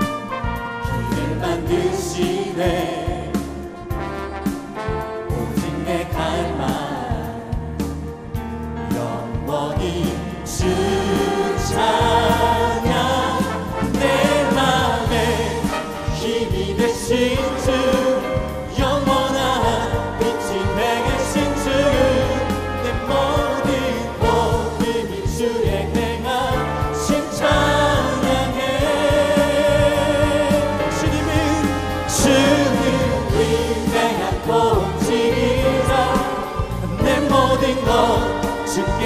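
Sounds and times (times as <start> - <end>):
choir singing praise song: 0.0 - 8.0, 8.9 - 39.0
band accompaniment: 0.0 - 39.0
bass: 0.0 - 39.0
percussion: 0.0 - 39.0.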